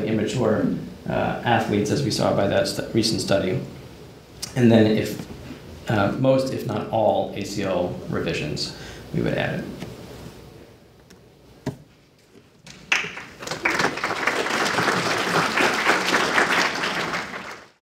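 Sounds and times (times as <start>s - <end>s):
audience applauding: 12.7s - 17.8s.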